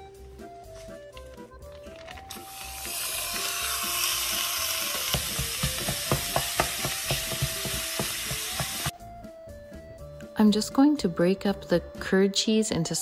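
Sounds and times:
meat sizzling in a saucepan: 2.4 - 8.9.

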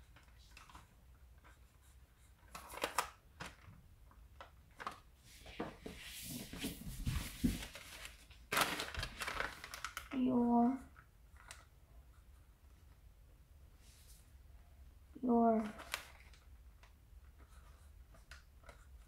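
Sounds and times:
wrapping paper crinkling: 7.4 - 10.2, 15.8 - 16.4.

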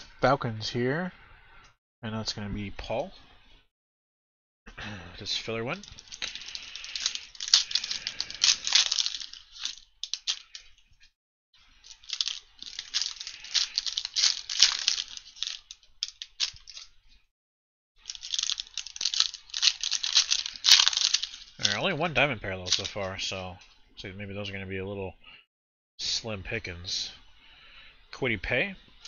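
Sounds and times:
foil wrapper crinkling and tearing: 5.7 - 10.7, 11.8 - 16.9, 18.0 - 22.0, 22.6 - 23.1.

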